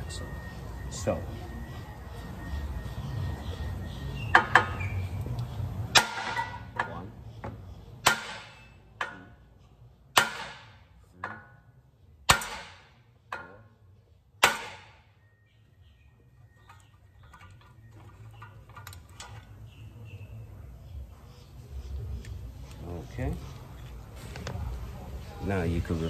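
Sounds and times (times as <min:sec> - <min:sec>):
hammer striking metal: 0:05.9 - 0:07.0, 0:08.0 - 0:09.3, 0:10.1 - 0:11.6, 0:12.3 - 0:13.6, 0:14.4 - 0:15.0.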